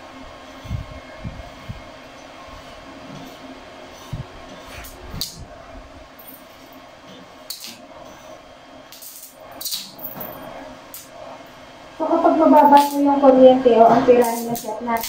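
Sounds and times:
steady hum: 0.0 - 15.0
welding arc crackling hisses: 7.4 - 10.0, 12.5 - 13.3, 14.1 - 15.0.

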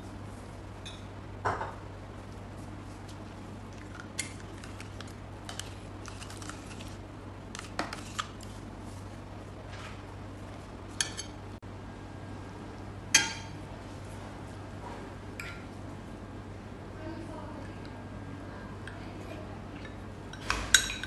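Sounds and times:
spoon clinking against glass bowls: 19.8 - 21.0.

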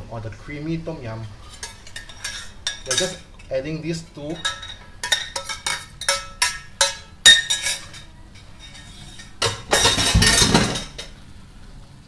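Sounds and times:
metal spoon clinking on cookware: 1.5 - 11.1.

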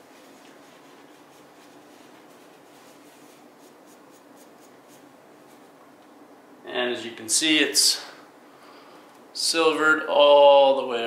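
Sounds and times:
cloth rag scrubbing pipe: 0.0 - 5.7.

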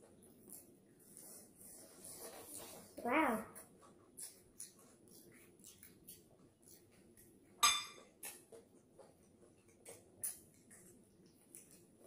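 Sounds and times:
wet chewing and mouth clicks: 3.6 - 12.0
glass clink: 7.6 - 8.0.

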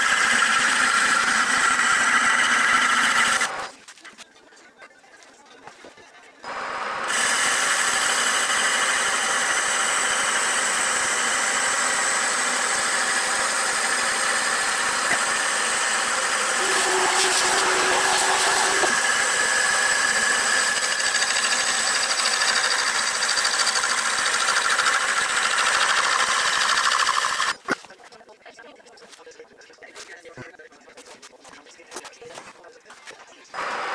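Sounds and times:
lathe motor whine: 0.0 - 3.7, 6.4 - 27.6, 33.6 - 33.9
tool cutting wood hiss: 7.0 - 27.7.

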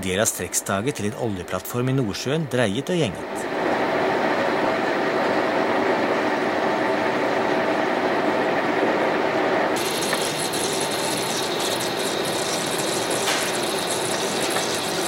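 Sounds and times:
lathe machining hum: 0.8 - 15.0
bright cutting hiss with crackle: 9.8 - 15.0.

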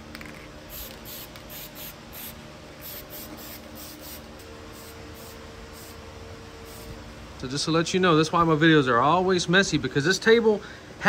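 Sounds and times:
spray paint can hissing: 0.2 - 6.0.

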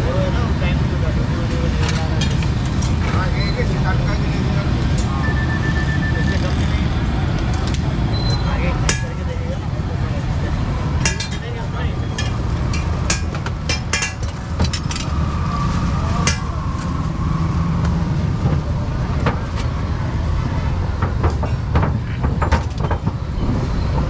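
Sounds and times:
low rumble: 23.0 - 24.0.

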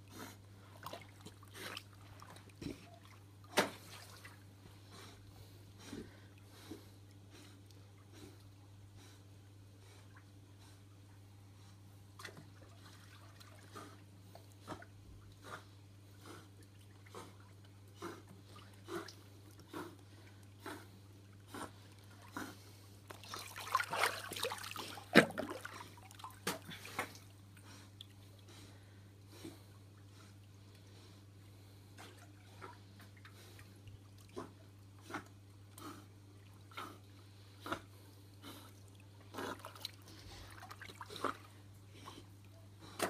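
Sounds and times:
dog splashing in pool water: 23.1 - 27.3.

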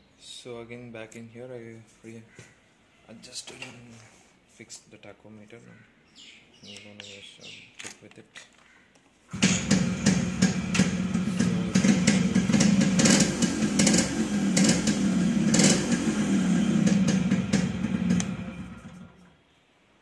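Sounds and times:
two-stroke motorcycle engine revving: 9.3 - 19.2.

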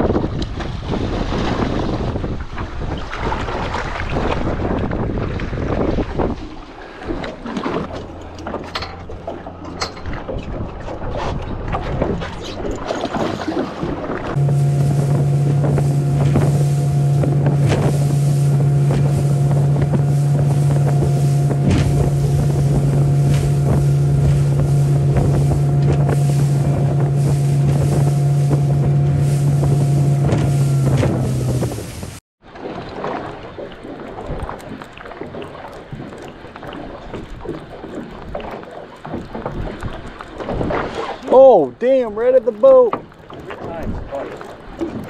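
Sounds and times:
wind buffeting microphone: 0.0 - 32.2, 42.9 - 45.0
boat engine running: 0.0 - 45.0
water rushing: 0.0 - 45.0.

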